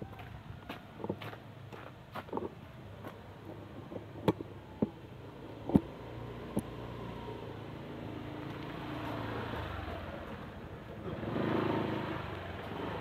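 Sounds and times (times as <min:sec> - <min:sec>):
motor scooter engine hum: 0:04.5 - 0:13.0.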